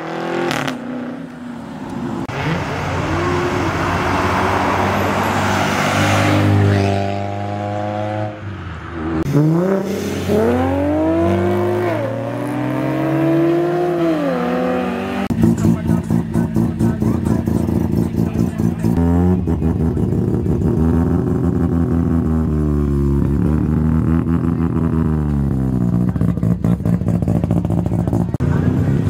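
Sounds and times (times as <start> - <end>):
cars accelerating past: 0.0 - 26.8
engine revving through gears: 9.2 - 29.0.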